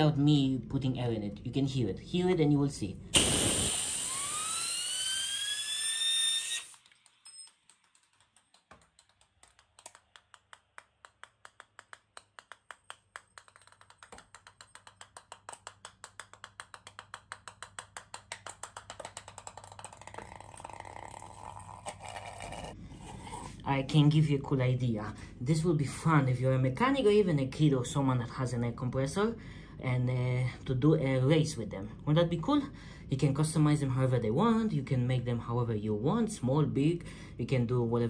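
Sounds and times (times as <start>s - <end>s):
air blow gun hissing: 3.1s - 6.8s
spinning wheel whine: 3.4s - 7.6s.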